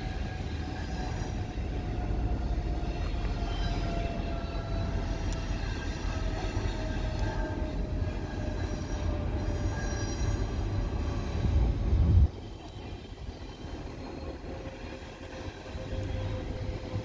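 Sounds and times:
passing diesel train rumble: 0.0s - 17.0s.

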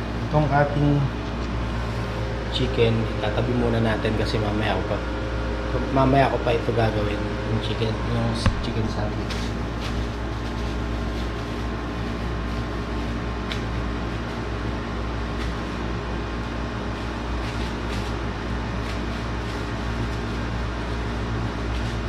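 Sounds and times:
air conditioner humming: 0.0s - 22.0s
paper towel rustling: 8.4s - 22.0s.

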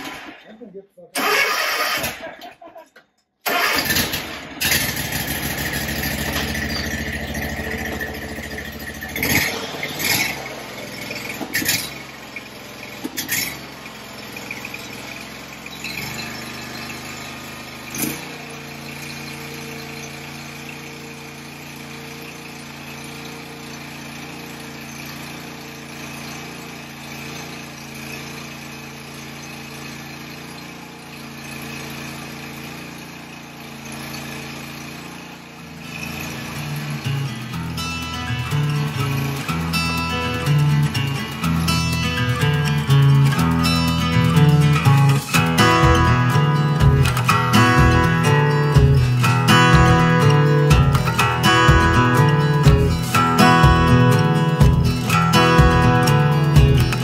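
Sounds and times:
sharp clanks: 0.0s - 15.1s, 36.0s - 57.0s
riding mower engine running: 1.2s - 2.6s, 3.4s - 57.0s.

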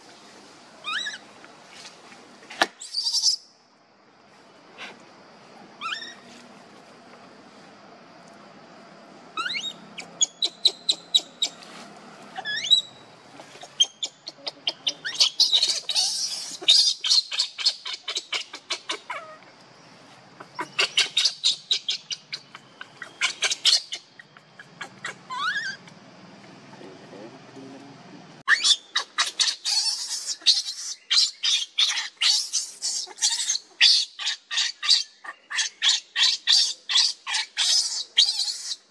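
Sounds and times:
infant monkey screaming: 0.8s - 1.2s, 2.7s - 3.4s, 5.8s - 6.2s, 9.4s - 11.6s, 12.4s - 19.4s, 20.4s - 25.9s, 28.5s - 38.9s.

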